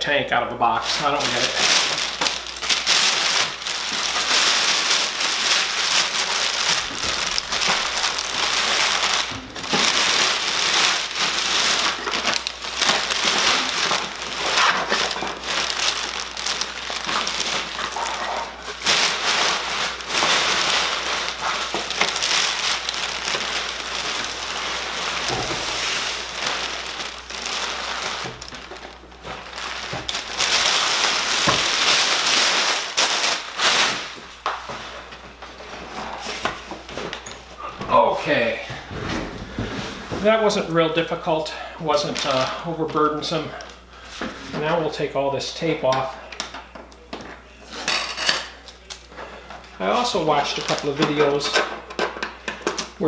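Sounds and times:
plastic bag crinkling: 0:00.6 - 0:44.0, 0:44.6 - 0:53.0.

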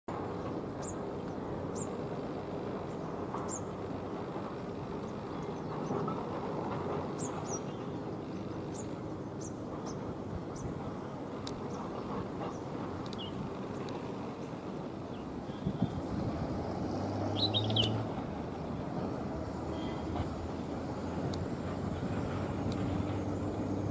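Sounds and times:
distant propeller plane drone: 0:00.1 - 0:23.9
high bird chirps: 0:17.3 - 0:18.0.

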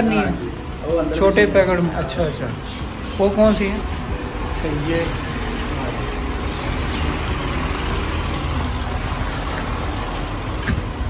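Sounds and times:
machine motor humming: 0:02.6 - 0:11.0.

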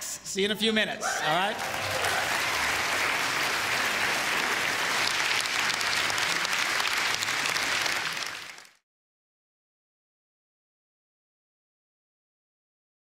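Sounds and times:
audience applauding: 0:01.0 - 0:08.8.

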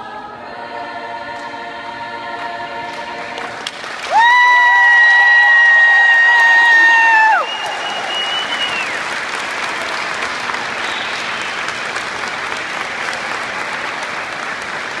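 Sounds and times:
audience applauding: 0:03.3 - 0:15.0.

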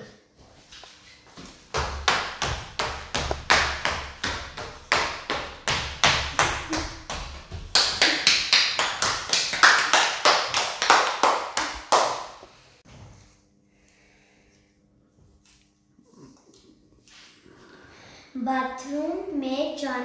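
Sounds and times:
bare feet thudding on tiles: 0:00.8 - 0:12.2
hand claps: 0:01.7 - 0:12.5.

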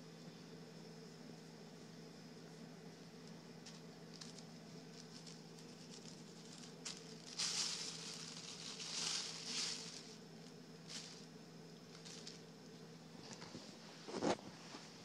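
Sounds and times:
cat rustling plastic bags: 0:03.6 - 0:12.7.

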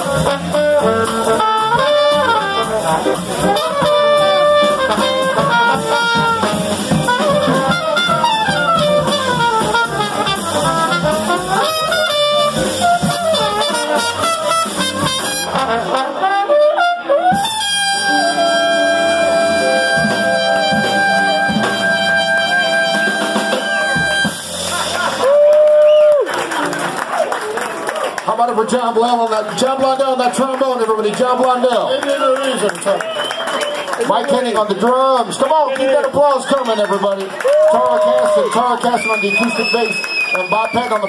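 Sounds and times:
small group jazz: 0:00.0 - 0:25.6.

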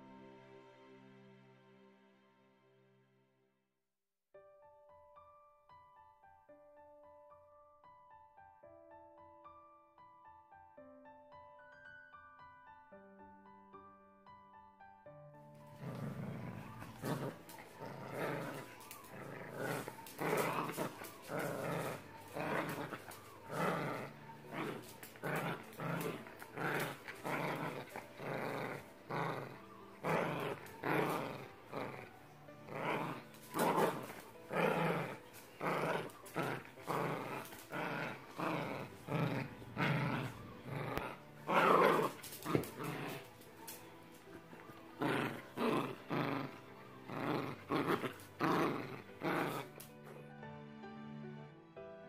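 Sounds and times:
dog play growling: 0:15.6 - 0:50.2.

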